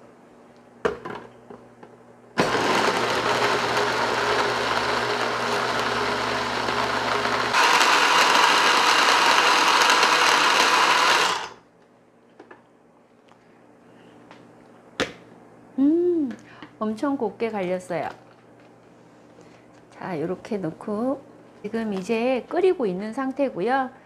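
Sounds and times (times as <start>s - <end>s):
blender motor running: 2.4s - 11.6s.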